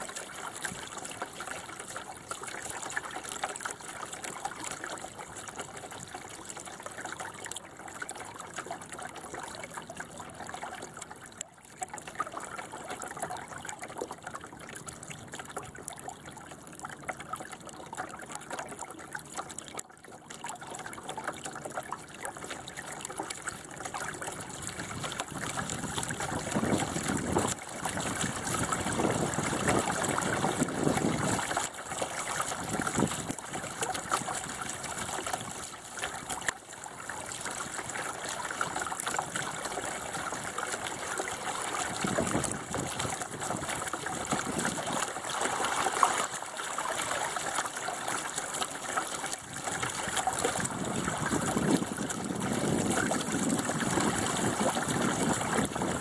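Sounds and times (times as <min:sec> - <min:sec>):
water rushing along boat hull: 0:00.0 - 0:56.0.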